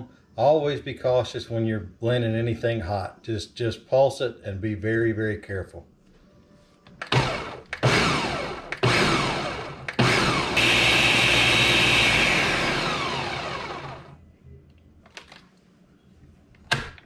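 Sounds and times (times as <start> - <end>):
blender motor pulsing: 7.1 - 14.2.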